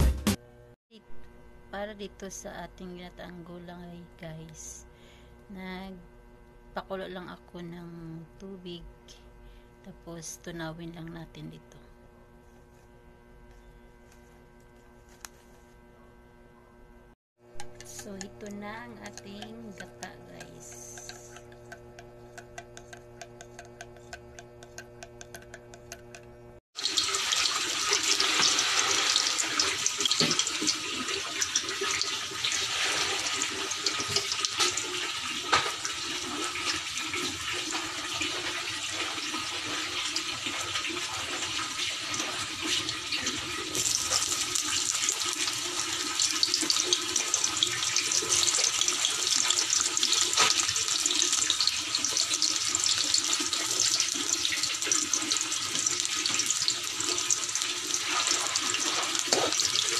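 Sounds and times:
garlic sizzling in hot oil: 0:26.8 - 0:59.9.

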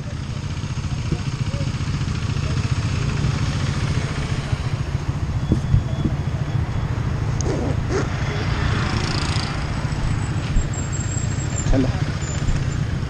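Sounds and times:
motorcycle engine idling: 0:00.0 - 0:07.3
passing city traffic: 0:00.0 - 0:13.0.

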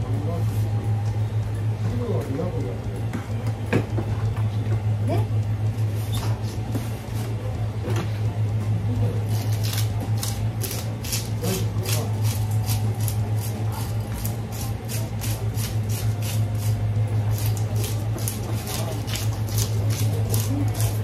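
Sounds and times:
low hum: 0:00.0 - 0:19.0
knife scraping fish scales: 0:09.3 - 0:21.0.

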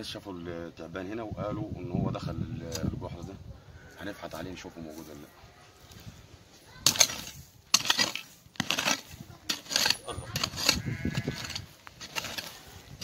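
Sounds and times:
soil and dry grass scraping: 0:02.2 - 0:13.0
hoe striking dry earth: 0:06.8 - 0:13.0.

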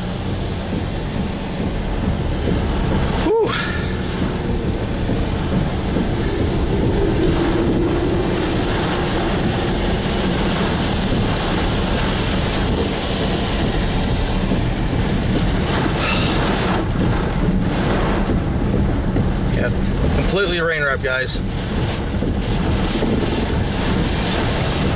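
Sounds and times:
heavy rain on a car: 0:00.0 - 0:24.9
storm wind buffeting a car: 0:00.0 - 0:24.9.

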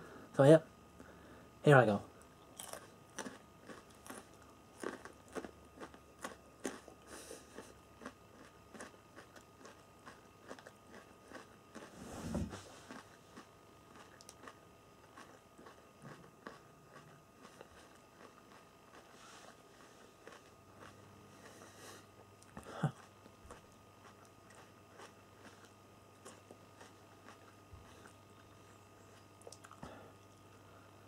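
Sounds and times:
person chewing garlic: 0:02.2 - 0:12.0, 0:12.6 - 0:31.0
wet mouth clicks: 0:29.4 - 0:29.8.

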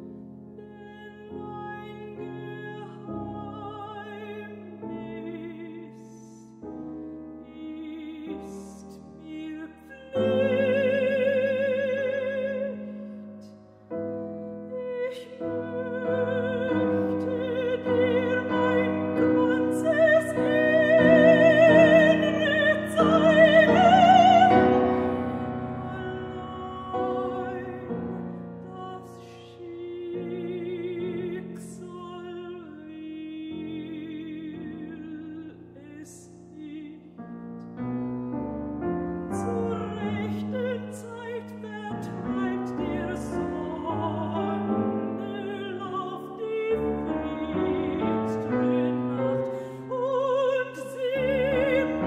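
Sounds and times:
soprano singing with vibrato: 0:00.0 - 0:37.4, 0:39.2 - 0:52.0
piano accompaniment: 0:00.0 - 0:52.0.

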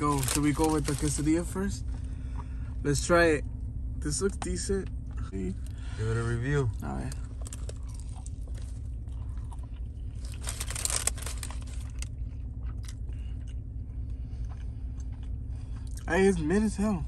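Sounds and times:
steady low hum: 0:00.0 - 0:17.0
person chewing crunchy food: 0:06.6 - 0:16.1.

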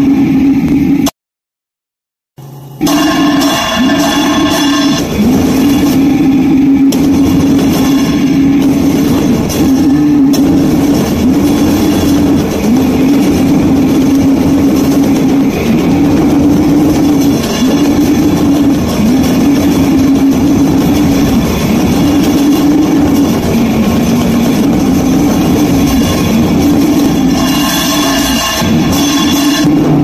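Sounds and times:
distorted guitar and drums: 0:02.4 - 0:30.0
droning bending low note: 0:02.4 - 0:30.0.

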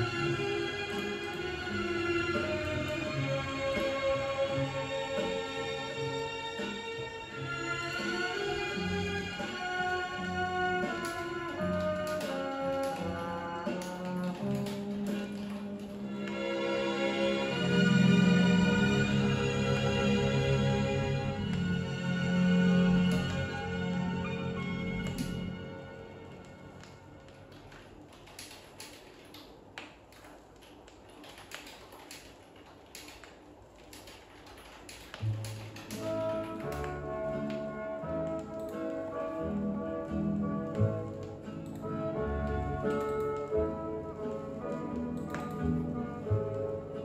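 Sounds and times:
orchestral music from vinyl record: 0:00.0 - 0:28.1, 0:35.2 - 0:47.0
vinyl clicks and pops: 0:26.4 - 0:39.2.

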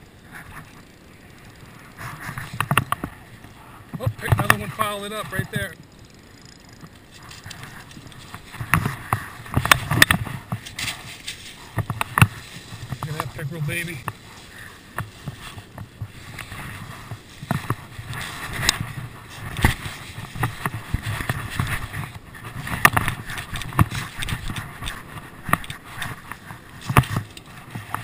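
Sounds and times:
footsteps on gravel: 0:06.9 - 0:27.9.

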